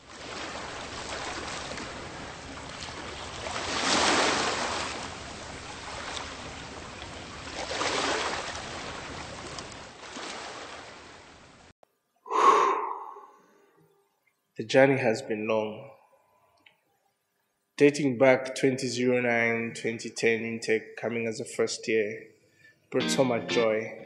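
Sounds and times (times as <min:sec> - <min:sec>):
ocean surf washing on beach: 0:00.0 - 0:11.4.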